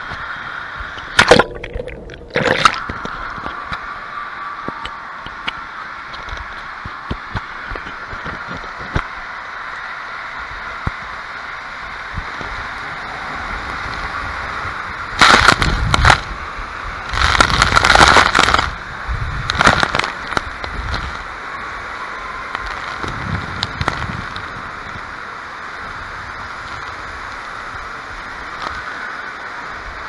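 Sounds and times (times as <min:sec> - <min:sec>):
water rushing through tube: 0:01.0 - 0:03.7
water splashing on camera: 0:01.0 - 0:03.8.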